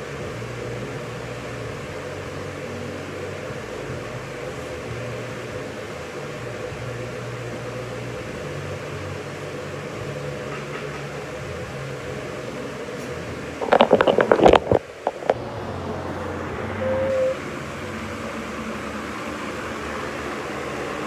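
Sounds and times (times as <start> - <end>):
floor fan whirring: 0.0 - 21.0
phone handling knocks and rattles: 13.6 - 15.4.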